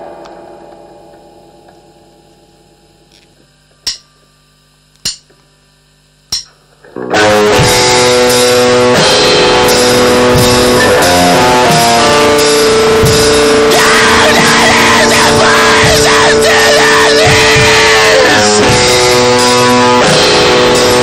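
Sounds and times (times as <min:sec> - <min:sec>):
distorted metal band playing: 0:00.0 - 0:03.1, 0:06.3 - 0:21.0
music track ending: 0:07.3 - 0:21.0.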